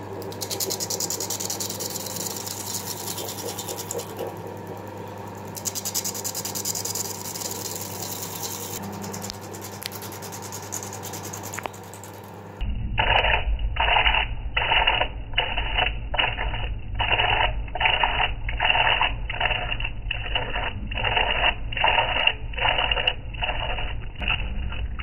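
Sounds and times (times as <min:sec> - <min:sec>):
gouge scraping wet fruit: 0:00.4 - 0:04.3, 0:05.6 - 0:12.0.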